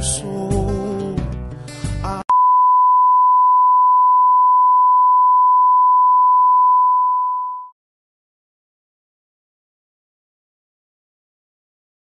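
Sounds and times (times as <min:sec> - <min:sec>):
high test tone beep: 0:02.3 - 0:07.7.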